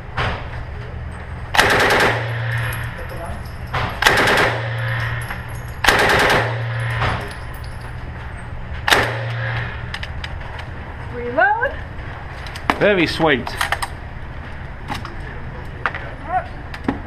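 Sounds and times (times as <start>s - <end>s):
submachine gun bursts echoing: 1.6s - 2.9s, 4.0s - 5.2s, 5.8s - 7.0s.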